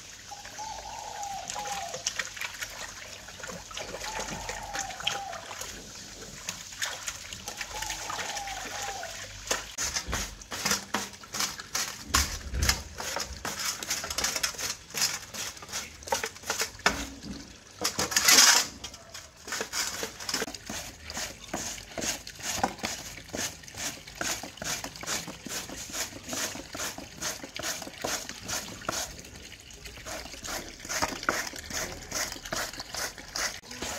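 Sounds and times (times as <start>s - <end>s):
root rasping on metal grater: 30.1s - 33.9s.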